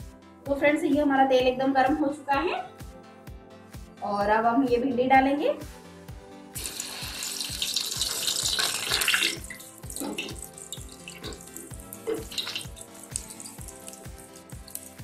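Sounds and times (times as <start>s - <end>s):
okra sizzling in hot oil: 6.6s - 15.0s.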